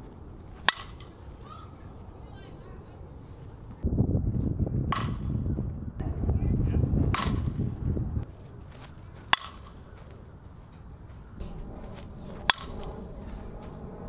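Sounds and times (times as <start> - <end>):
bat hitting softball: 0.6 - 1.2, 4.9 - 5.4, 7.1 - 7.6, 9.2 - 9.8, 12.5 - 12.8
loud low rumble: 3.8 - 8.3, 11.4 - 14.0.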